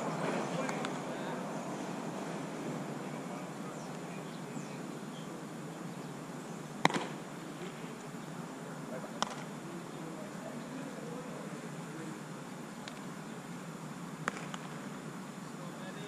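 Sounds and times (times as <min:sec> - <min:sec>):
ballpark ambient hum: 0:00.0 - 0:16.0
baseball smacks: 0:06.8 - 0:07.9, 0:09.2 - 0:09.5, 0:14.2 - 0:15.0.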